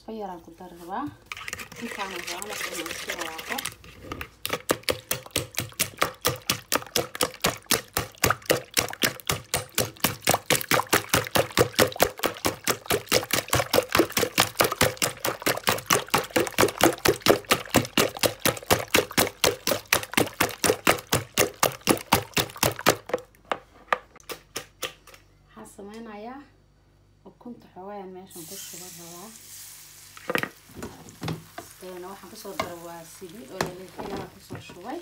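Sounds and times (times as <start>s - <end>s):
whisk beating eggs in a bowl: 1.3s - 23.2s.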